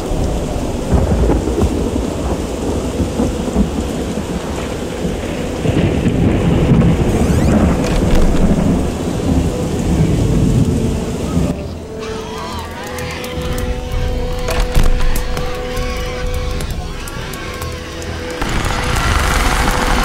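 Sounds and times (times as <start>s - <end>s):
loud low rumbling: 13.7s - 20.0s.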